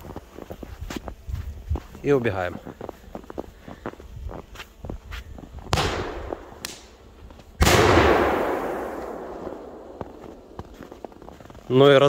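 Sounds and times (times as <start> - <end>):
distant firecracker bangs: 5.7 - 7.0, 7.6 - 10.6.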